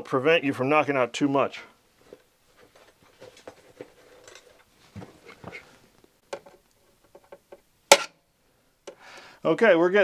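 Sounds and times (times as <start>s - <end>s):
small metallic clicks and scrapes: 3.3s - 4.7s
sharp metal clack: 7.9s - 8.2s.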